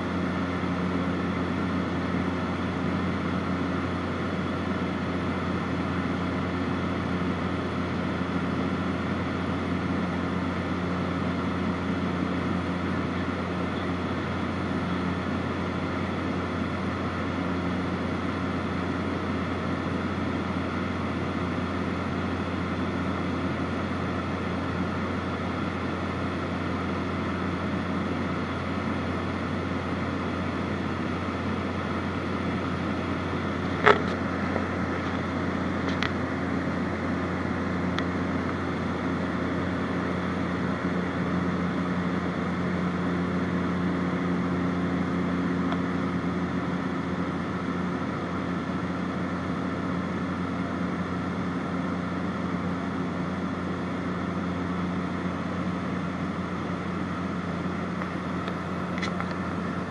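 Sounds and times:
aircraft engine and propeller droning: 0.0s - 59.9s
cabin air noise: 22.4s - 50.2s.

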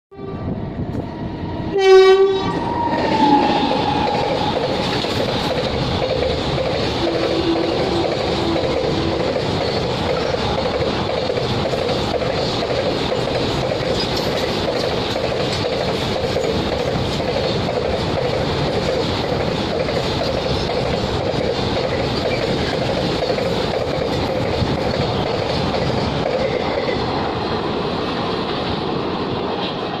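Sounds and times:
locomotive horn blast: 0.1s - 0.6s, 1.7s - 3.5s, 7.0s - 9.3s
train wheels on rails: 0.2s - 30.0s.

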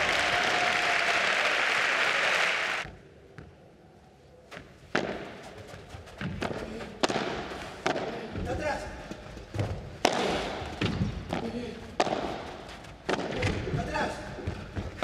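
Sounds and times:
crowd applauding: 0.0s - 2.8s
ball hitting rackets: 4.6s - 15.0s.

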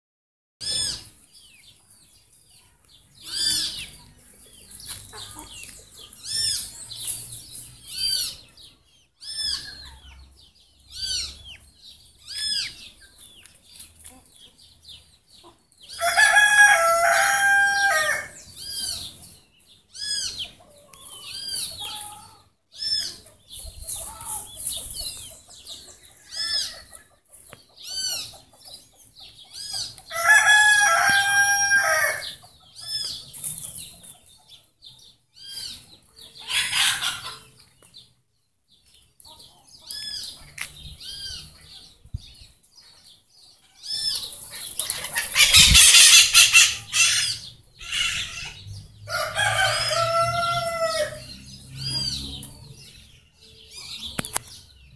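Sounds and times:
small birds chirping: 0.6s - 54.9s
rooster crowing: 16.0s - 18.4s, 30.1s - 32.4s, 49.1s - 51.4s.

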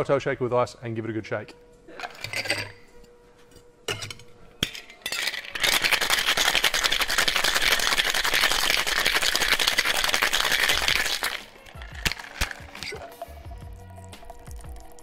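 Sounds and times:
ice rattling in shaker: 5.0s - 15.0s
cocktail shaker tin clicks: 5.2s - 13.3s.

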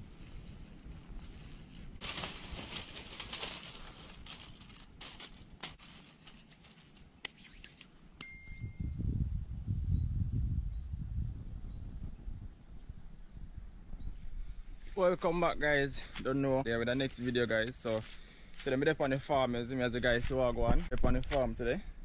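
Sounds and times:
plastic bag crinkling: 0.0s - 7.1s
charcoal clattering onto foil: 2.0s - 7.0s.

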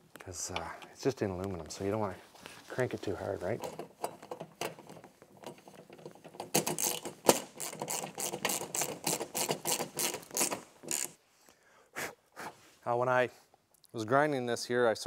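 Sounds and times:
ratchet wrench clicking: 6.6s - 11.2s.

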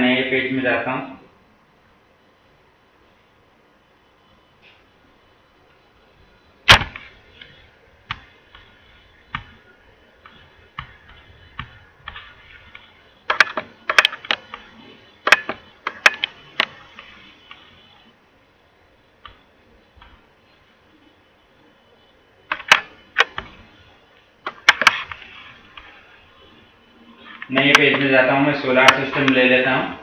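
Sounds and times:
pointing device clicks: 13.3s - 14.6s.

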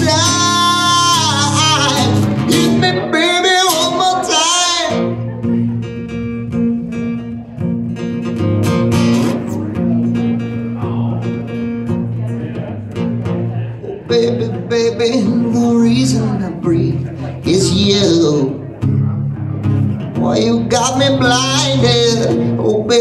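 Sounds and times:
man singing: 0.0s - 5.3s, 13.8s - 18.7s, 20.1s - 23.0s
acoustic guitar strumming: 0.0s - 23.0s.

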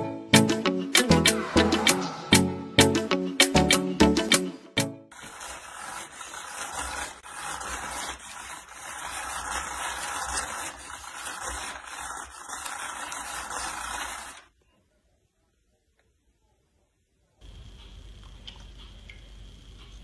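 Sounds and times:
small electric motor whirring: 5.1s - 14.4s.

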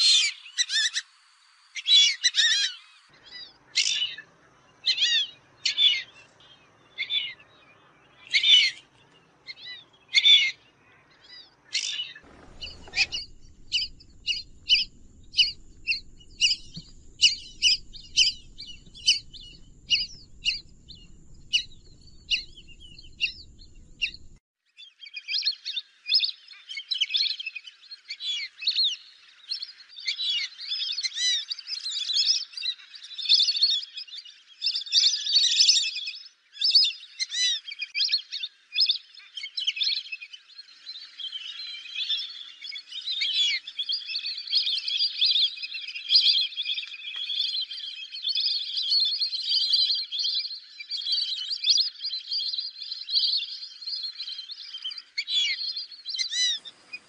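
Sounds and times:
ducks whistling calls: 9.5s - 24.4s, 54.7s - 57.0s
low rumble: 12.3s - 24.4s
thin steady high tone: 12.4s - 24.4s.

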